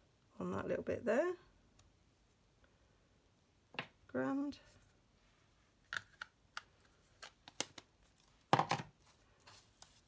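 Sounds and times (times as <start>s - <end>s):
object set down knock: 8.5s - 8.9s.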